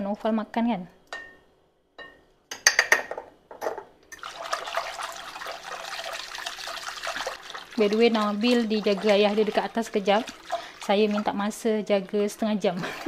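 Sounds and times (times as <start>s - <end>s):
whisk swishing water: 4.2s - 11.5s.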